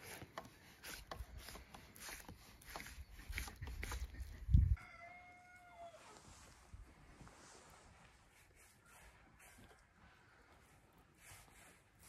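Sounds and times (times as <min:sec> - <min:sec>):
rooster crowing: 0:04.8 - 0:06.2.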